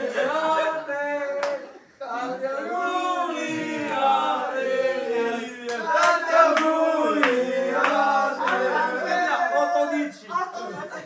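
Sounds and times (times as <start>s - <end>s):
men singing a chant: 0.0s - 10.2s
sharp handclaps: 5.7s - 8.7s.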